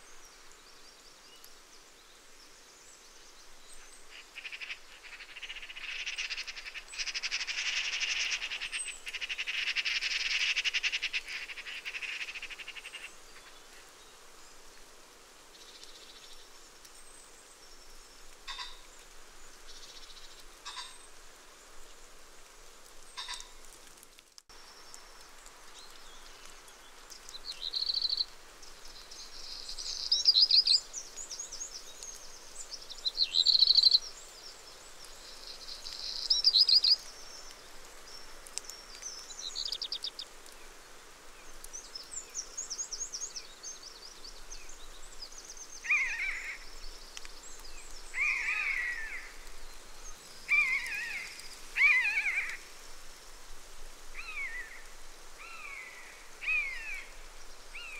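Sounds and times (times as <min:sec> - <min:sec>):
steady outdoor hiss: 0:00.0 - 0:57.9
faint ticks: 0:21.8 - 0:32.7, 0:35.0 - 0:40.7, 0:41.4 - 0:43.2, 0:46.7 - 0:48.0
kestrels calling shrilly: 0:45.8 - 0:46.6, 0:48.2 - 0:49.3, 0:50.5 - 0:52.6, 0:55.4 - 0:57.1.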